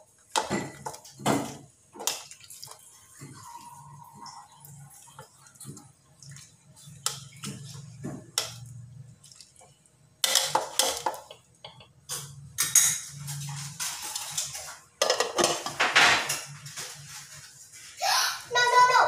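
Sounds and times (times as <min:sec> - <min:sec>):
broth sloshing: 0:00.8 - 0:11.4.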